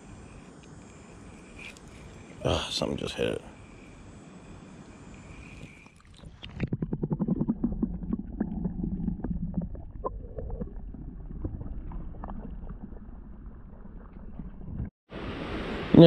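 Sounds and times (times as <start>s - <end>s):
low hum: 0.0s - 16.0s
muffled water underwater: 3.6s - 15.8s.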